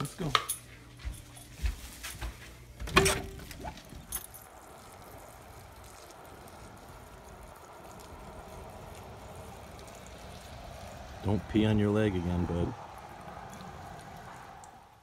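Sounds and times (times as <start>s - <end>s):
faint outdoor hiss: 0.0s - 15.0s
door squeak: 2.9s - 3.8s.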